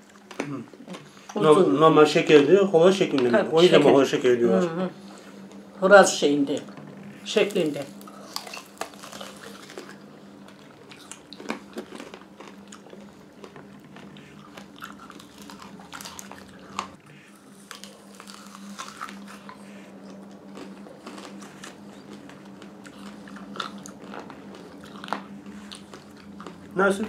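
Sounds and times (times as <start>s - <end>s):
wet chewing: 6.6s - 27.0s.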